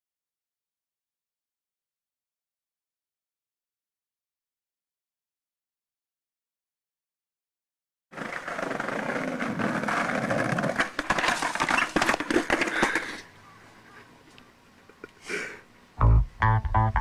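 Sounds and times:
skateboard wheels rolling on stone: 0:08.1 - 0:13.3
skateboard clattering on steps: 0:08.2 - 0:13.2
rock music with guitar and bass: 0:16.0 - 0:17.0.

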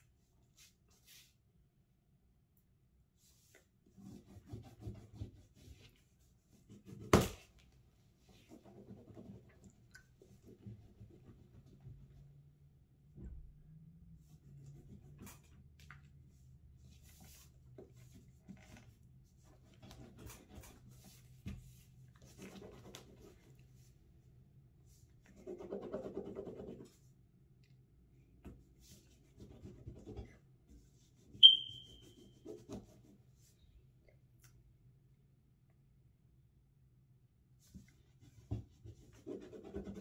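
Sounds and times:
crayon scratching on paper: 0:25.3 - 0:27.0, 0:38.8 - 0:40.0
sharp high ping: 0:31.4 - 0:32.0.

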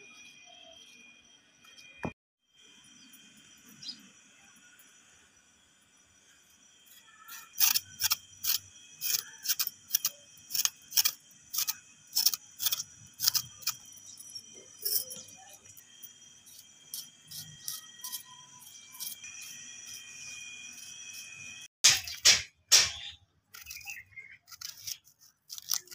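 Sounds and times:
knife scraping potato skin: 0:06.9 - 0:25.9.

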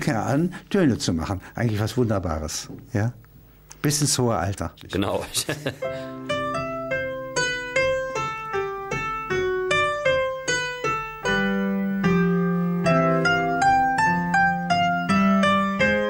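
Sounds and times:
low held piano notes: 0:05.8 - 0:16.0
slow piano melody: 0:05.8 - 0:16.0.

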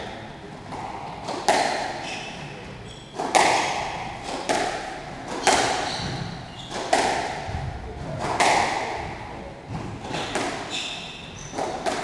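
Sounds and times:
squash ball hits: 0:00.7 - 0:12.0
shoes squeaking on wooden floor: 0:05.4 - 0:07.0, 0:10.0 - 0:11.8.

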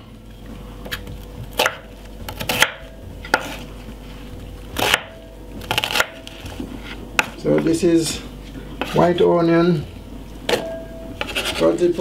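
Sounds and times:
knife chopping onion on board: 0:00.8 - 0:03.7, 0:04.8 - 0:06.4, 0:07.2 - 0:07.7, 0:11.2 - 0:11.7.

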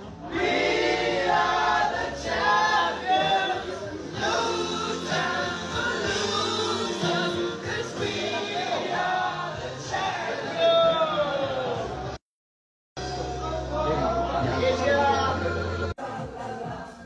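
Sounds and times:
dressing-room din: 0:00.0 - 0:12.2, 0:13.0 - 0:17.0
men singing together: 0:00.3 - 0:10.6, 0:14.3 - 0:17.0.

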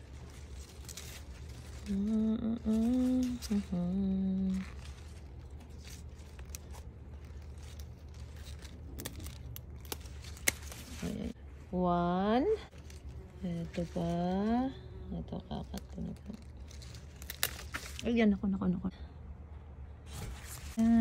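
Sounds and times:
woman humming: 0:01.8 - 0:05.0, 0:13.4 - 0:16.5.

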